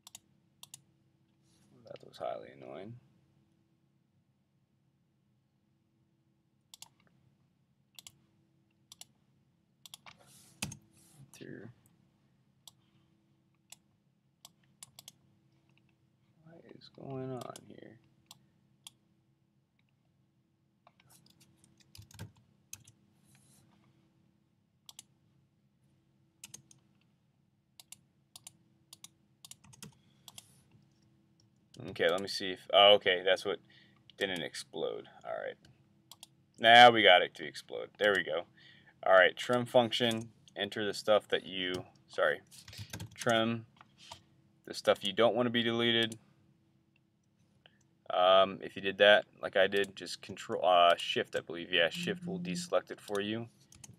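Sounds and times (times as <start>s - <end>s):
faint computer mouse clicks: 0.0s - 0.8s
keyboard and mouse clicks: 0.0s - 0.8s, 6.7s - 7.1s, 8.0s - 8.2s, 8.9s - 9.1s, 9.8s - 10.8s, 14.4s - 15.9s, 20.9s - 23.0s, 24.9s - 25.1s, 26.4s - 27.1s, 27.8s - 31.1s, 36.1s - 36.3s, 38.0s - 38.2s, 42.6s - 44.2s, 53.0s - 53.9s
low steady hum: 22.6s - 47.0s, 48.0s - 53.6s.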